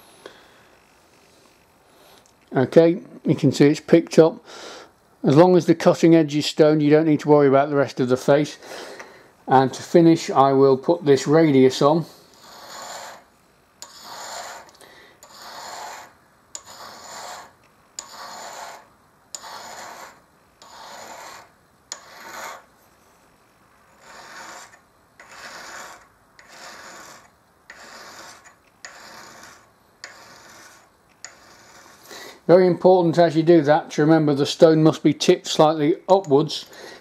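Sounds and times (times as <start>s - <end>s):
honing stone rubbing on steel: 10.2s - 23.0s, 23.8s - 32.4s.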